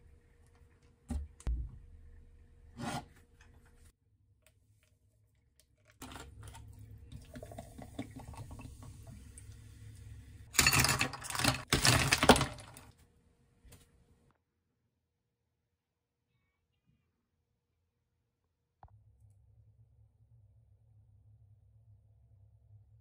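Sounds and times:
water poured into a glass: 6.5s - 9.5s
ice cubes clattering in glass: 10.6s - 12.8s.

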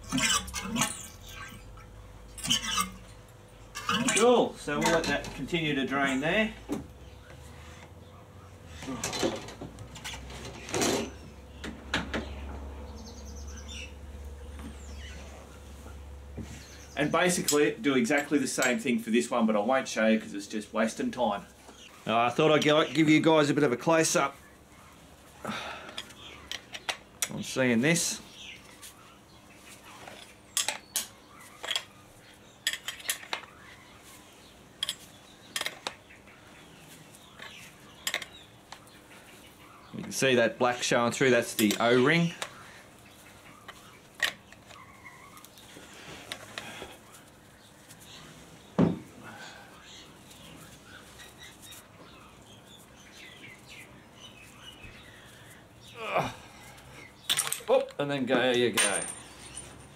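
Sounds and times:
bird chirps: 41.6s - 56.0s
metal parts clinking: 57.3s - 57.7s, 58.7s - 59.9s
tools knocking and clattering: 58.6s - 59.9s.

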